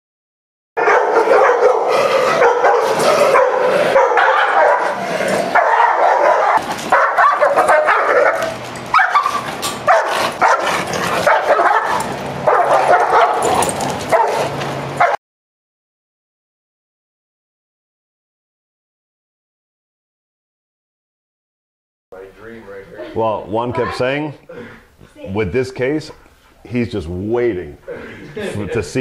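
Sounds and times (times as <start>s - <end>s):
dog barking aggressively: 0.8s - 15.2s.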